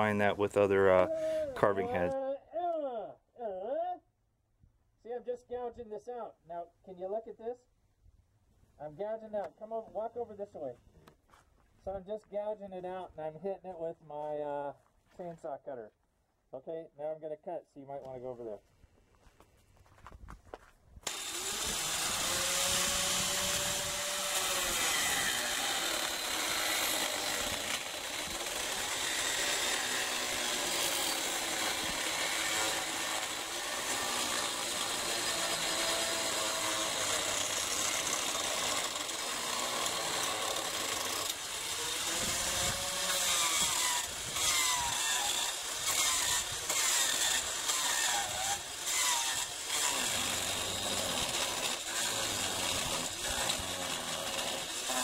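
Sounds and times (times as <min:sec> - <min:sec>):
angle grinder cutting wood: 0:00.0 - 0:02.2, 0:21.0 - 0:55.0.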